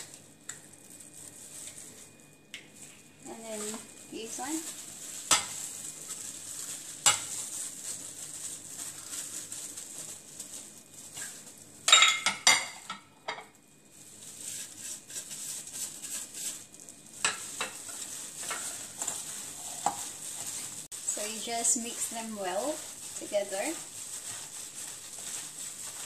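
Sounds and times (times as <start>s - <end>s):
gloved hand mixing food in bowl: 0.0s - 11.9s, 13.4s - 26.0s
dishes knocking and rattling: 11.9s - 13.5s.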